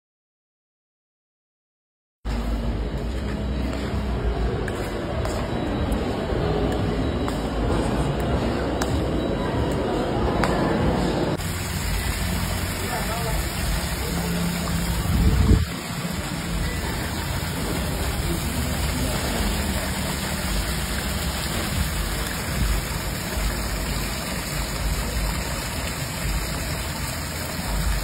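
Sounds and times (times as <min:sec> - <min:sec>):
water pouring and splashing into pool: 0:11.3 - 0:28.0.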